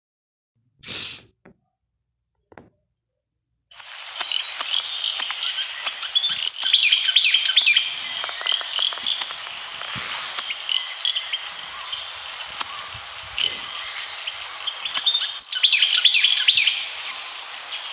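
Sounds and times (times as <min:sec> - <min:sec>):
small birds chirping: 0:03.8 - 0:17.9
steady hiss: 0:03.8 - 0:17.9.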